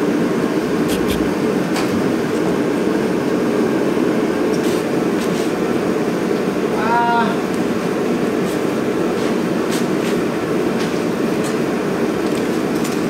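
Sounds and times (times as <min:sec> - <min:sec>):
machinery rumble: 0:00.4 - 0:03.4.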